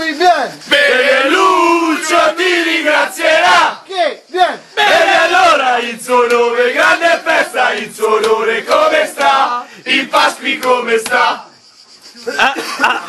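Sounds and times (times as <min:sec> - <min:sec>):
men chanting loudly: 0:00.6 - 0:11.5.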